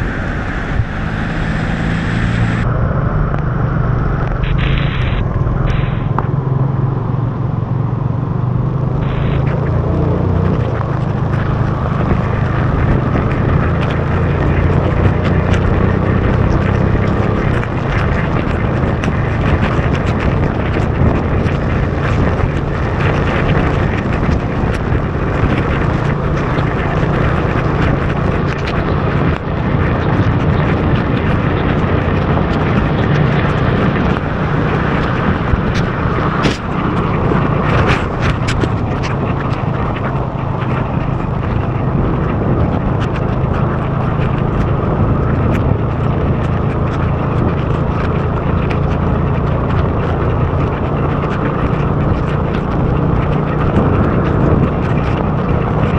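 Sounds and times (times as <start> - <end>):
motorbike engine rumble: 0.0 - 55.9
wind on microphone: 0.0 - 55.9
raindrops tapping camera: 9.0 - 55.9.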